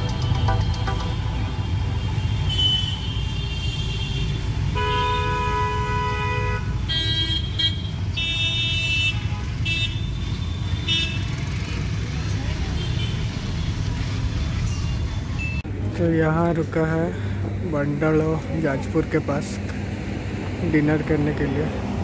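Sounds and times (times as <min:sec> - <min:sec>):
vehicle horns honking: 0:00.0 - 0:11.6
traffic rumble: 0:00.0 - 0:22.0.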